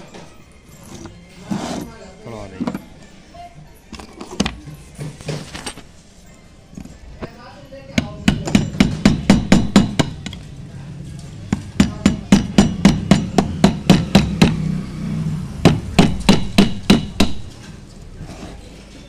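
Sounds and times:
hammer striking chisel on metal: 0:07.9 - 0:10.4, 0:11.5 - 0:14.7, 0:15.6 - 0:17.7.

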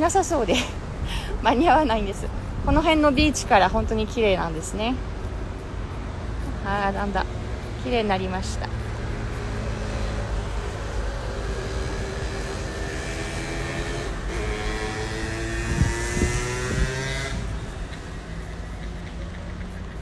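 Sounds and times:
low rumble of traffic: 0:00.0 - 0:20.0
wind: 0:00.0 - 0:20.0
vehicle engine passing: 0:06.4 - 0:20.0.

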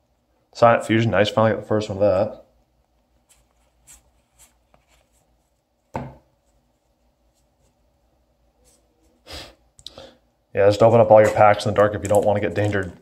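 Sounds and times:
card brushing: 0:03.2 - 0:05.6
card thumping on playmat: 0:05.9 - 0:06.2.

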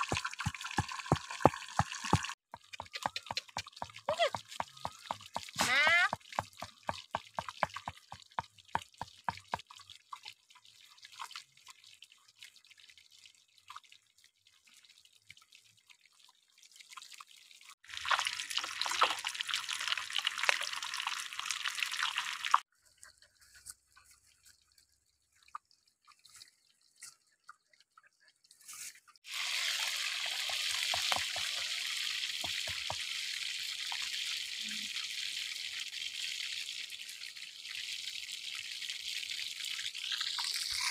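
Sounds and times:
fish frying in oil: 0:00.0 - 0:10.3, 0:17.1 - 0:22.6, 0:29.2 - 0:40.9.

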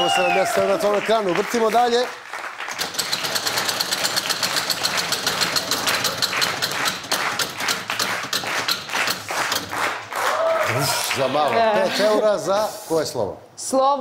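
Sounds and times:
prize wheel pegs clicking: 0:02.7 - 0:07.6.

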